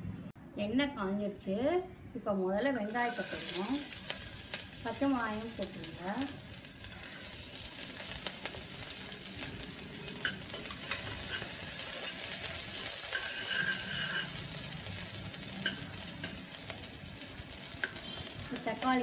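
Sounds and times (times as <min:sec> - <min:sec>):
onion sizzling in hot oil: 0:02.8 - 0:19.0
spoon scraping and clicking on pot: 0:10.2 - 0:12.2, 0:13.1 - 0:14.3.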